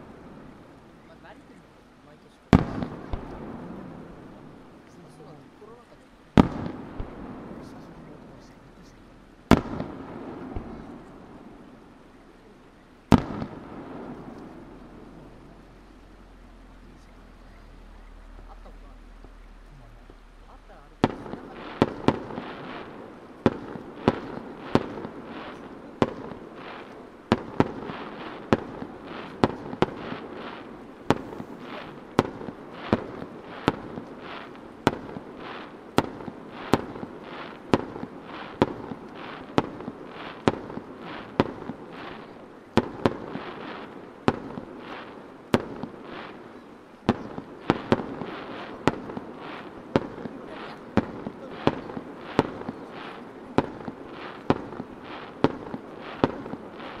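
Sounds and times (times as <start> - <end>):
crackling noise: 0.0 - 57.0
firework shells bursting: 2.5 - 5.3, 6.3 - 12.0, 12.9 - 57.0.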